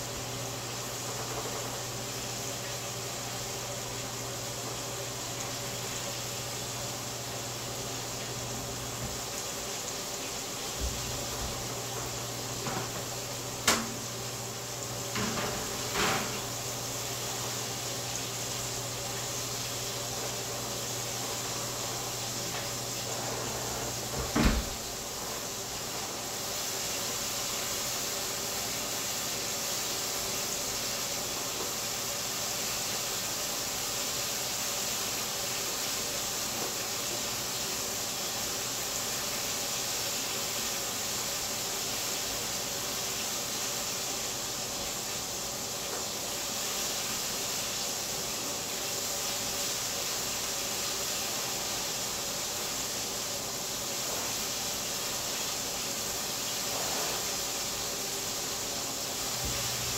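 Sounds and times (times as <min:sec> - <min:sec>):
steady hiss: 0:00.0 - 0:59.9
oven racks metal clattering: 0:10.8 - 0:14.4, 0:15.0 - 0:16.6, 0:22.4 - 0:25.2.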